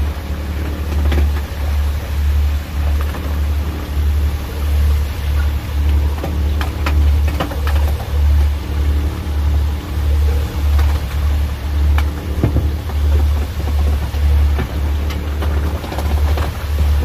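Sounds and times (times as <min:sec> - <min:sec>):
boat engine idling: 0:00.0 - 0:17.0
sharp knocks and clatters: 0:11.9 - 0:16.6.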